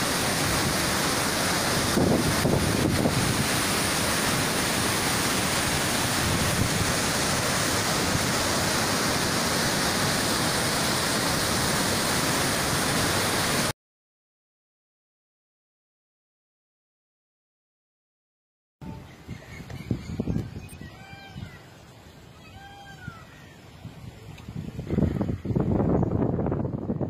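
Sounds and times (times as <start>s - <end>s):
water rushing through waterfall: 0.0s - 13.7s.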